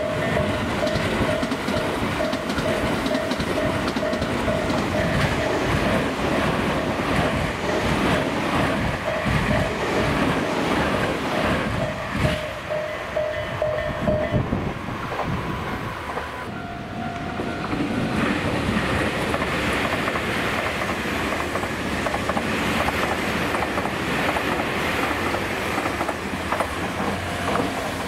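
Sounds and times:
electric train passing: 0:00.0 - 0:28.0
wheels clicking over rail joints: 0:00.2 - 0:10.6, 0:17.2 - 0:28.0.

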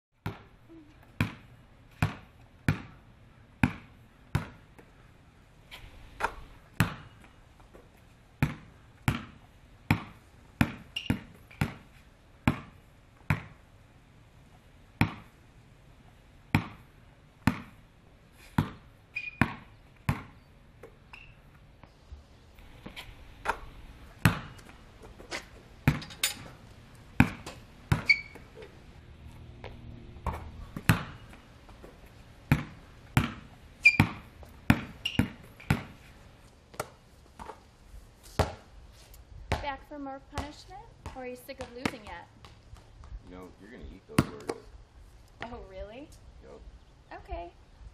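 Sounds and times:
basketball bouncing on pavement: 0:00.2 - 0:05.0, 0:06.1 - 0:13.6, 0:15.0 - 0:15.4, 0:16.5 - 0:17.9, 0:18.5 - 0:21.9, 0:22.8 - 0:28.7, 0:29.6 - 0:36.1, 0:36.7 - 0:37.7, 0:38.3 - 0:38.7, 0:39.4 - 0:43.2, 0:44.2 - 0:44.7.

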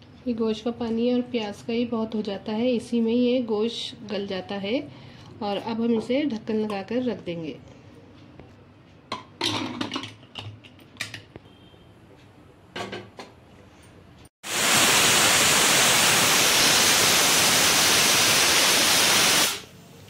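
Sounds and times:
steam hissing from pressure cooker: 0:14.4 - 0:19.7.

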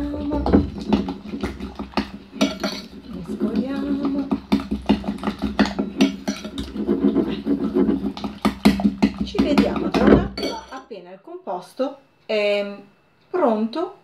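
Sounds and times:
metal spoon clinking on glass bowl: 0:10.4 - 0:10.8.

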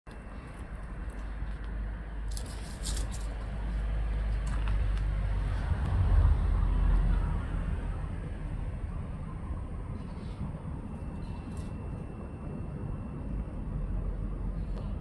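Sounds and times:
passing road traffic rumble: 0:00.1 - 0:15.0.

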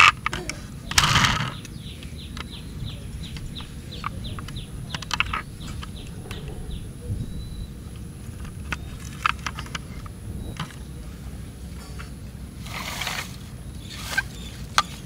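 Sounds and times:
plastic toy clicks: 0:00.0 - 0:01.8, 0:03.3 - 0:05.9
bird chirping: 0:00.0 - 0:12.0, 0:13.6 - 0:15.0
loud rustle: 0:03.2 - 0:15.0.

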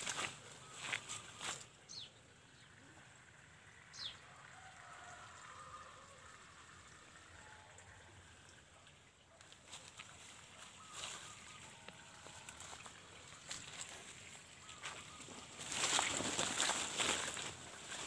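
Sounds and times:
leaves and branches rustling: 0:00.0 - 0:01.8, 0:09.4 - 0:18.0.

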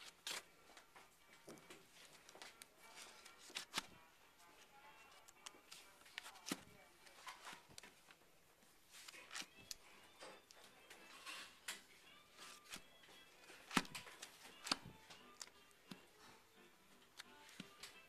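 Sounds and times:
record sleeves slapping and crinkling: 0:00.0 - 0:04.0, 0:05.2 - 0:09.9, 0:11.7 - 0:16.2.

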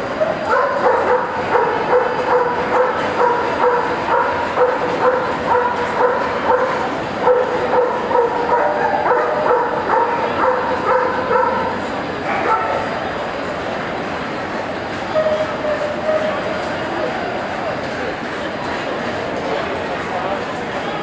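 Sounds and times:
dog barking: 0:00.2 - 0:11.7, 0:12.3 - 0:12.9.

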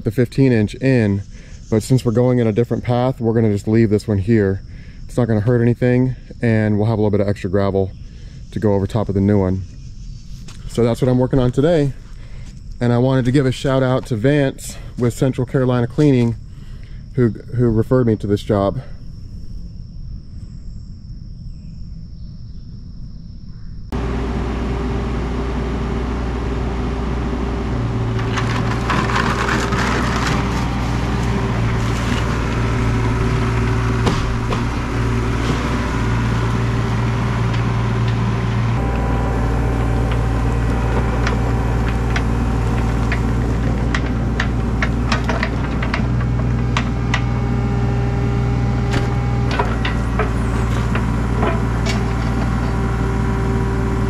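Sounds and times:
excavator engine running: 0:23.9 - 0:54.0
bucket scraping: 0:27.6 - 0:54.0
sharp knocks and cracks: 0:28.2 - 0:35.9, 0:40.9 - 0:47.4.

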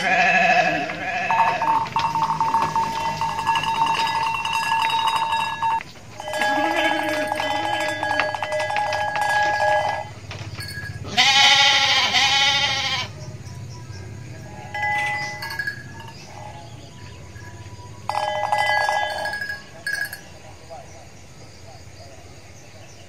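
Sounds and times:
sheep bleating: 0:00.0 - 0:03.6, 0:06.2 - 0:08.4, 0:11.0 - 0:13.2
ringing tones: 0:00.0 - 0:11.8, 0:14.4 - 0:20.4.

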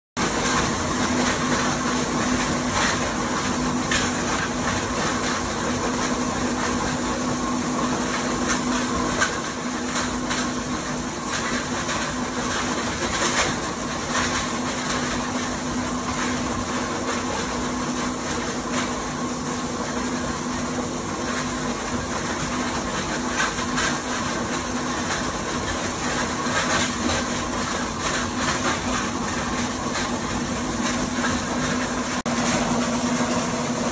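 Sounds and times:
plastics grinder humming: 0:24.0 - 0:33.9.

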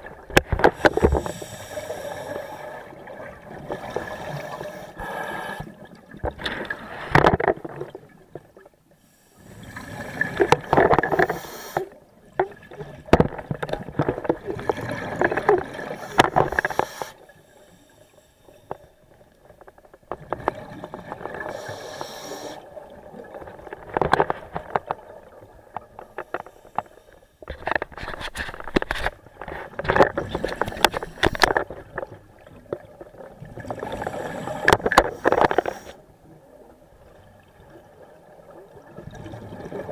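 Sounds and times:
diver breathing through regulator: 0:00.6 - 0:03.0, 0:03.9 - 0:05.8, 0:09.0 - 0:12.0, 0:15.8 - 0:18.8, 0:21.4 - 0:22.7, 0:33.8 - 0:36.0
bubbles gurgling: 0:12.2 - 0:16.0, 0:36.4 - 0:39.9.

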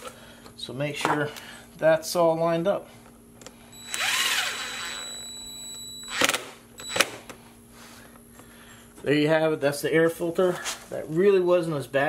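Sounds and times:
cordless drill running: 0:03.8 - 0:07.2.

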